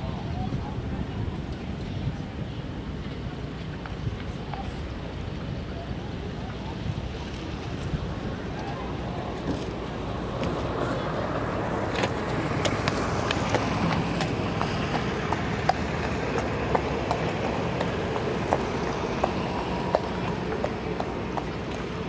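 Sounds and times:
wind noise on microphone: 0:00.0 - 0:15.3
horse hooves on sand: 0:07.3 - 0:22.0.

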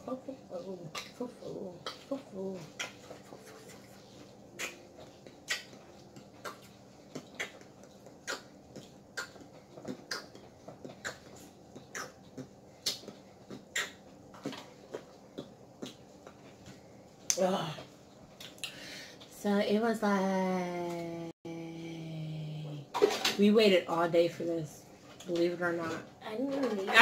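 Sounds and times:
wet chewing and lip-smacking: 0:04.6 - 0:17.4.

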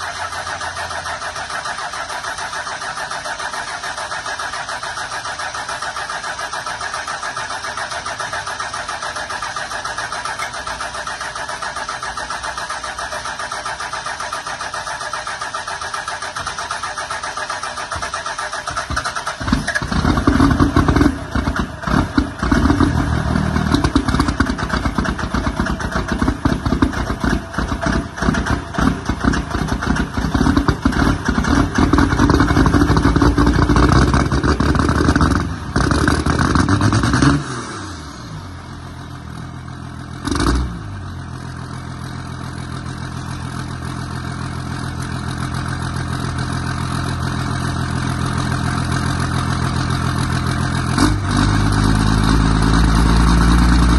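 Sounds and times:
diesel engine rumbling unevenly: 0:00.0 - 0:40.2
diesel engine cranking: 0:00.0 - 0:53.9.

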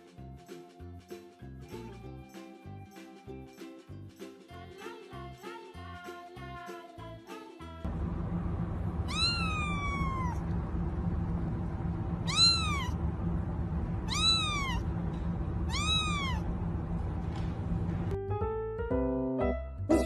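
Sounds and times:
kitten meowing: 0:09.0 - 0:10.4, 0:12.2 - 0:13.0, 0:13.9 - 0:14.9, 0:15.6 - 0:16.6.

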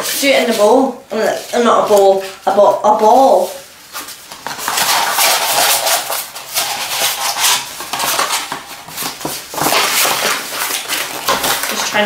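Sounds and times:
paper being crumpled: 0:04.1 - 0:12.0.

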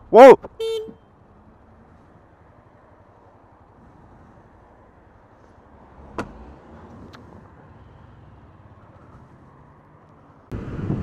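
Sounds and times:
wind rush while riding: 0:10.5 - 0:11.0.

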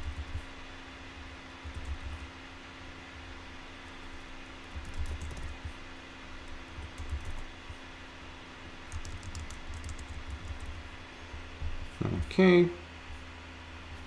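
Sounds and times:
steady low hum: 0:00.0 - 0:14.0
computer keyboard typing: 0:01.6 - 0:02.2, 0:03.9 - 0:05.7, 0:06.4 - 0:07.5, 0:08.9 - 0:10.8.

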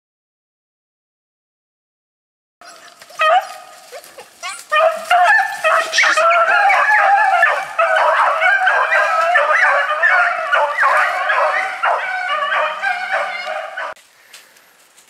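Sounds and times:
beagles baying and yelping: 0:02.6 - 0:14.0.

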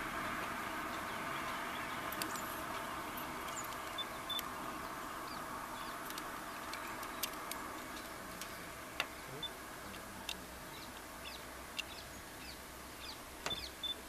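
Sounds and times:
outdoor background hiss: 0:00.0 - 0:14.0
high bird chirps: 0:10.7 - 0:14.0.

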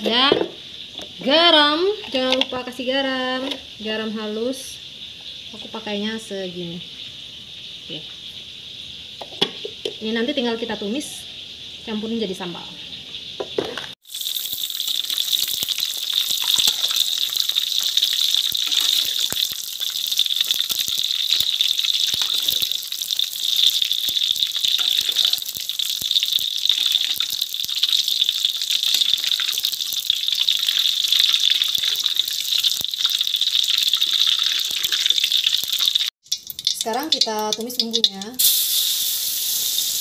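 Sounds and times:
tofu sizzling in hot oil: 0:14.0 - 0:40.0.

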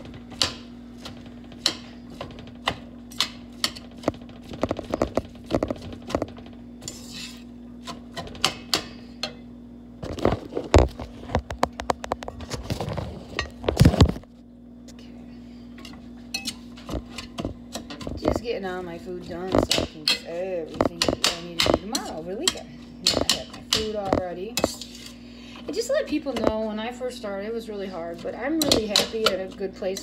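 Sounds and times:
steady low hum: 0:00.0 - 0:30.0
spatula scraping a steel skillet: 0:06.8 - 0:07.5.

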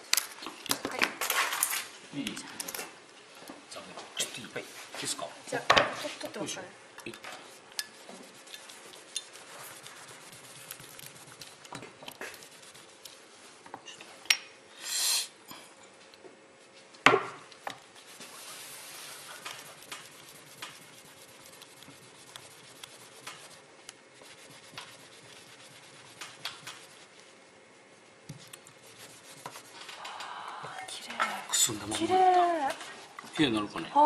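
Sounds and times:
cloth rubbing metal: 0:07.5 - 0:11.6, 0:12.2 - 0:13.5, 0:17.9 - 0:29.9
short hiss: 0:14.8 - 0:15.4.

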